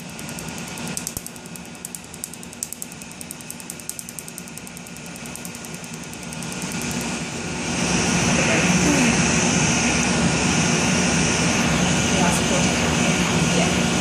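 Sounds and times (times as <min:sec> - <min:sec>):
laser snapping clicks: 0:00.3 - 0:07.1.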